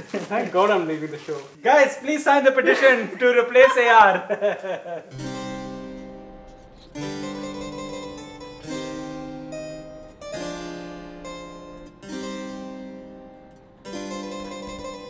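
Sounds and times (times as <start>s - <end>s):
harpsichord chords: 5.1s - 15.0s.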